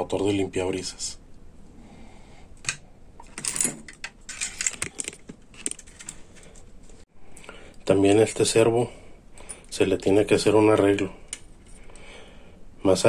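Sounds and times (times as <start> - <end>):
small parts clicking and rattling: 2.6 - 6.7.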